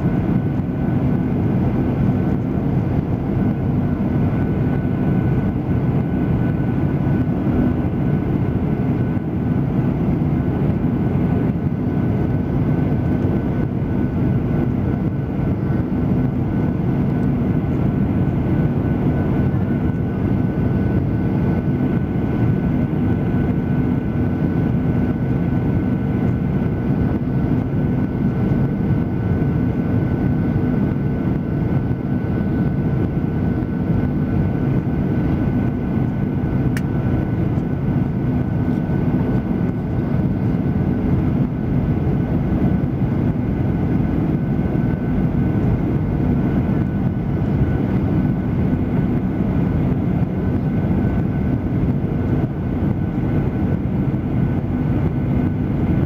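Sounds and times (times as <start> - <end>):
airliner cabin engine drone: 0.0 - 56.0.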